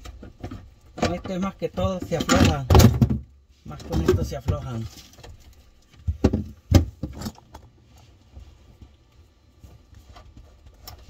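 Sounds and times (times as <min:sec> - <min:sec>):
faint handling noise: 0:03.4 - 0:11.0.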